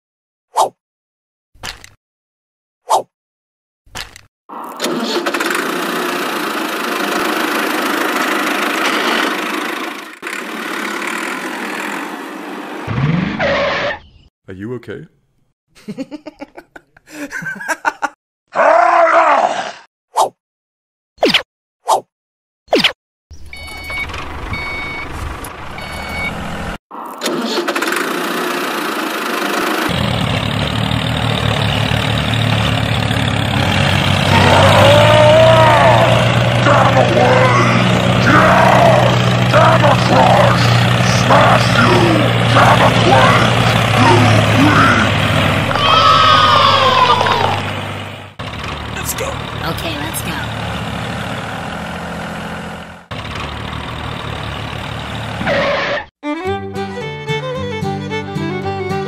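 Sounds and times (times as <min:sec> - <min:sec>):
tractor engine running: 0:04.6 - 0:12.9, 0:23.3 - 0:56.0
short beeps: 0:25.8 - 0:26.4
falling groan-like sound: 0:34.2 - 0:47.7.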